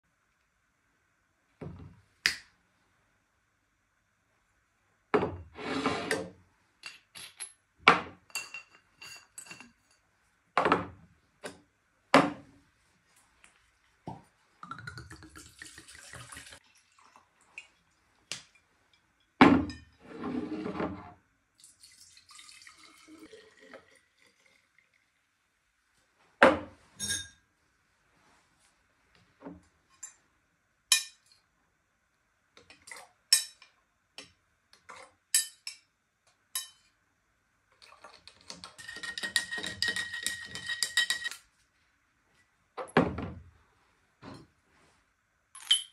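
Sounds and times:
bottles and utensils clinking on counter: 6.8s - 10.0s, 26.5s - 27.4s, 37.8s - 41.4s, 45.6s - 45.9s
liquid pouring into plastic jug: 14.7s - 17.7s, 21.6s - 25.2s.

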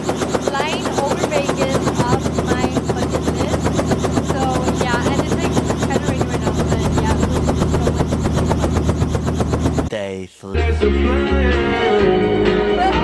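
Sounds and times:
helicopter rotor blades chopping: 0.0s - 10.2s.

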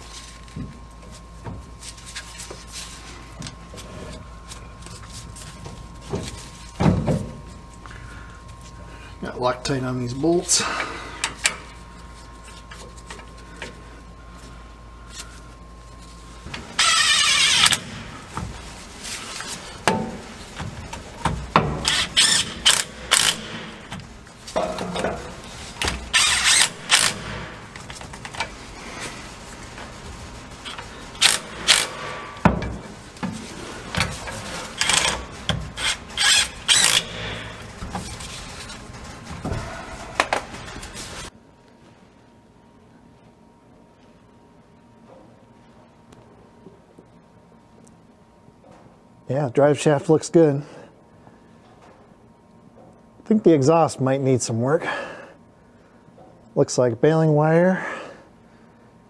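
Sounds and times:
cordless power tool driving bolts: 16.8s - 18.0s, 21.6s - 24.0s, 25.8s - 27.6s, 30.7s - 32.6s, 34.8s - 37.6s.

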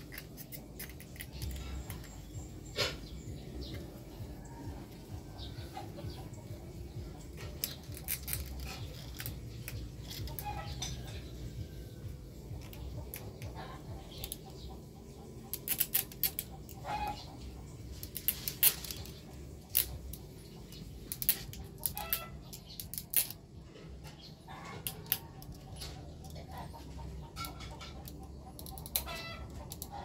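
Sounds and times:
plastic parts clicking and snapping: 0.0s - 2.3s, 7.2s - 11.4s, 12.5s - 14.8s, 15.4s - 16.8s, 17.9s - 30.0s
chicken clucking: 0.0s - 7.8s, 8.6s - 22.8s, 23.6s - 30.0s.

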